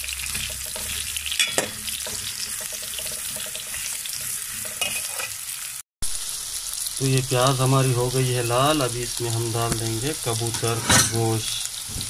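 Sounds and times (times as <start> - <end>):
metal spatula scraping pot: 0.0 - 5.4
onions sizzling in hot oil: 0.0 - 12.0.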